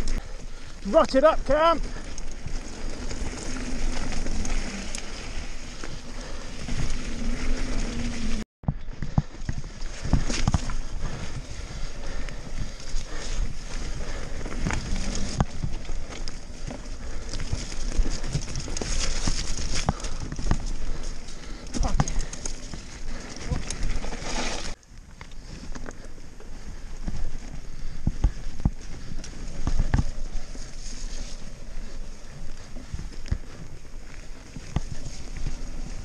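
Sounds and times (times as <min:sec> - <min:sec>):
tyres rolling over dirt: 0:00.0 - 0:24.8
bike knocks and rattles: 0:14.1 - 0:24.8.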